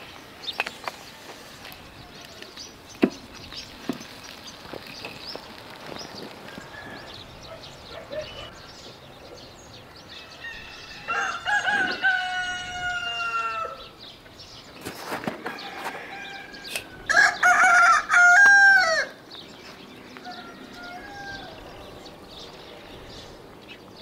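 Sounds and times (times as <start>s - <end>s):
rooster crowing: 10.1s - 13.9s, 15.4s - 19.2s, 20.2s - 21.8s.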